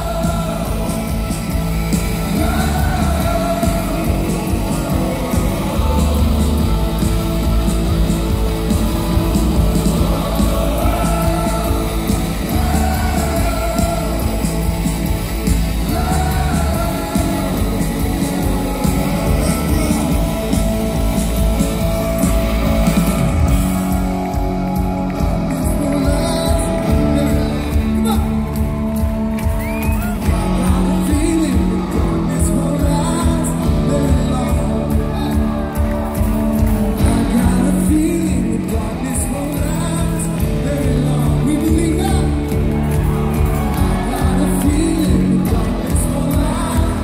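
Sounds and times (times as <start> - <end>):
voices singing long notes: 0.0 - 28.4
live rock band playing: 0.0 - 47.0.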